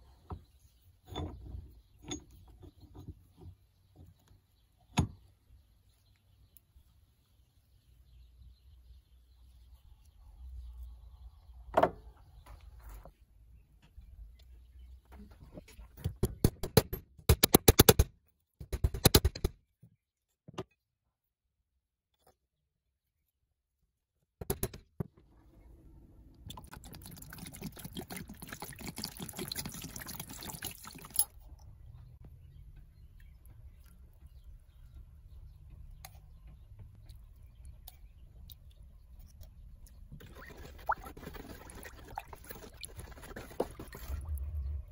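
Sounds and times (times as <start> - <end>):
water pouring into plastic tub: 26.5 - 31.2, 40.2 - 44.3.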